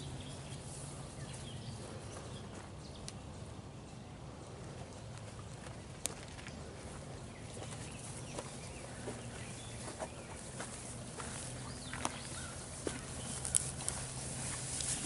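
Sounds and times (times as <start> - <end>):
low steady hum: 0.0 - 15.0
horse chewing hay: 12.4 - 15.0.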